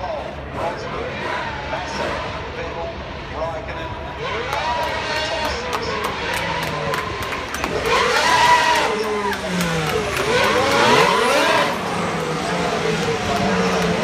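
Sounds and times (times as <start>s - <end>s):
racing car engines passing by: 0.0s - 14.0s.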